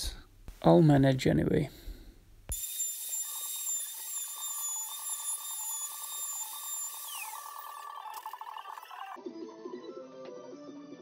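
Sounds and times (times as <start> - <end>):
router high-pitched whine: 2.5 - 9.2.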